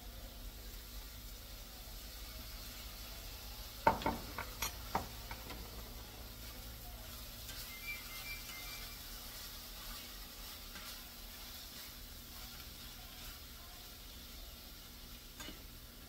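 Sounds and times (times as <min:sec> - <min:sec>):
sausage sizzling in a skillet: 0:00.0 - 0:16.0
utensil scraping a pan: 0:04.0 - 0:13.7.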